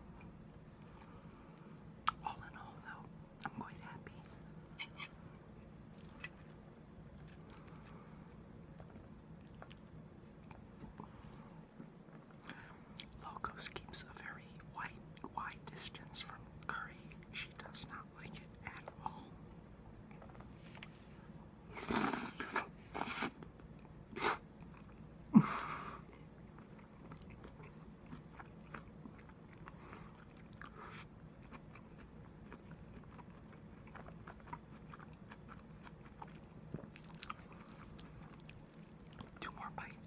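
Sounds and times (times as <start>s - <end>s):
soft chewing: 0.0s - 40.0s.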